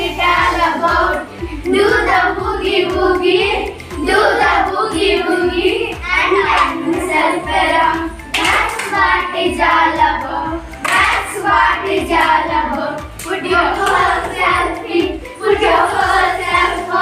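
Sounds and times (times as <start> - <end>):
children singing: 0.0 - 17.0
hand claps: 6.3 - 7.0, 8.2 - 9.2, 10.8 - 11.4, 13.0 - 14.4.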